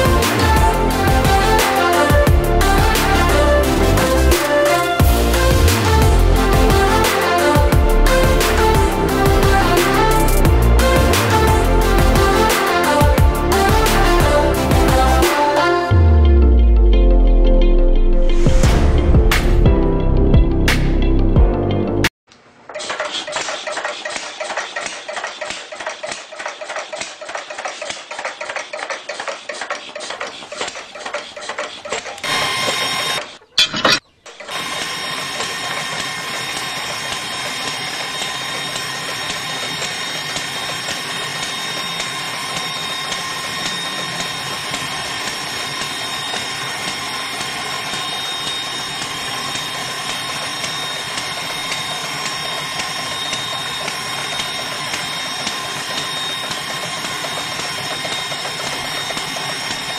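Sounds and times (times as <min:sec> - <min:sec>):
small motor whining: 0:34.4 - 0:59.9.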